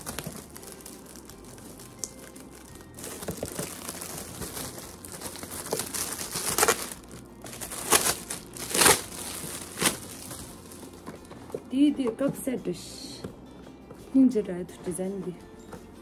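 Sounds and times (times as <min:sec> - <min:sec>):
gift wrapping crinkling: 0:00.0 - 0:11.6.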